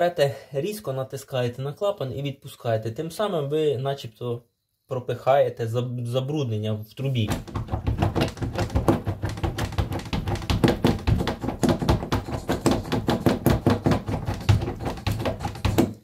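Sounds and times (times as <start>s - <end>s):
drain stopper knocking in water: 7.3s - 16.0s.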